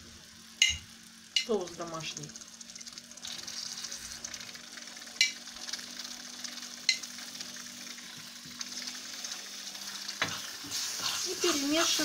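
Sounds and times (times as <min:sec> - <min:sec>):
roux sizzling in a frying pan: 0:00.0 - 0:12.0
spoon knocking against pan: 0:00.6 - 0:01.5.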